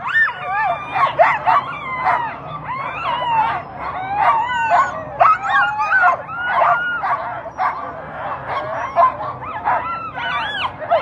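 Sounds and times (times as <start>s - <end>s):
dogs barking yipping and howling: 0.0s - 11.0s.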